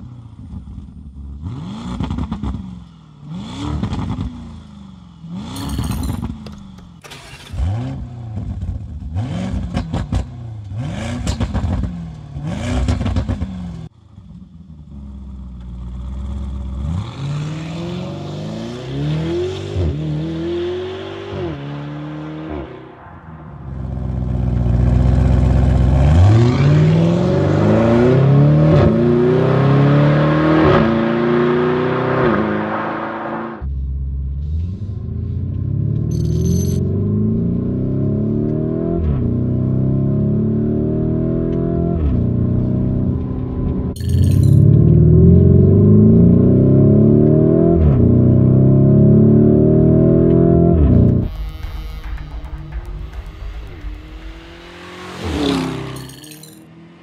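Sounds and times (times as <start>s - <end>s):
car engine revving: 5.3s - 33.7s, 34.4s - 57.0s.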